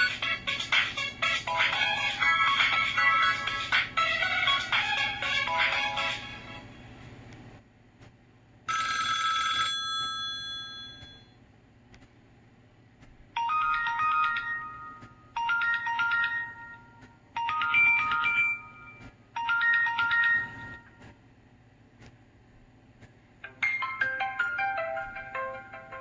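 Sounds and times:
ringing chord ringtone: 0.0s - 6.7s, 13.4s - 21.0s, 23.5s - 26.0s.

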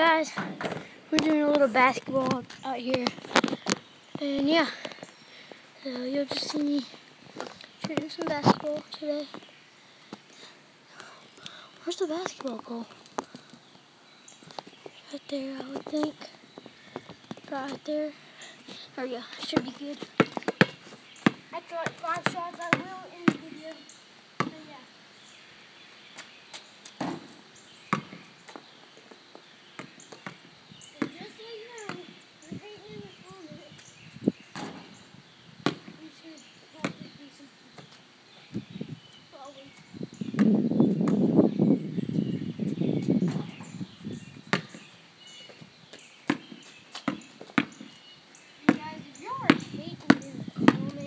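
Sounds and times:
basketball bouncing on asphalt: 19.4s - 23.8s, 24.4s - 24.7s, 27.0s - 28.6s, 29.8s - 32.2s, 34.5s - 34.9s, 35.6s - 36.0s, 36.8s - 37.1s, 40.3s - 41.3s, 44.5s - 44.8s, 46.2s - 48.0s, 48.7s - 51.0s.

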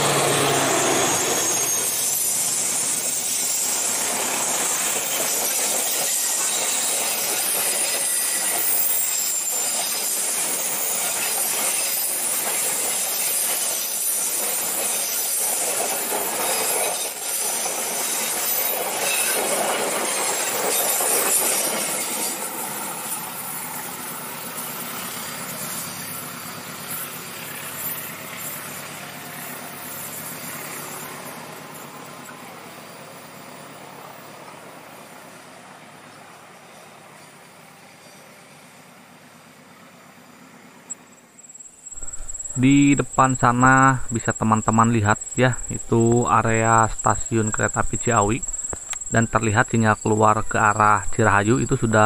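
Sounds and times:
train wheels rumbling on rails: 0.0s - 39.3s.

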